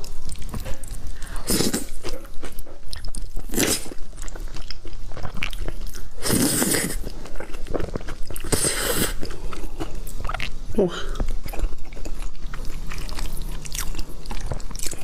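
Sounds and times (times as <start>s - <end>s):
wet chewing and smacking: 0.0s - 15.0s
slurping noodles: 6.2s - 7.1s.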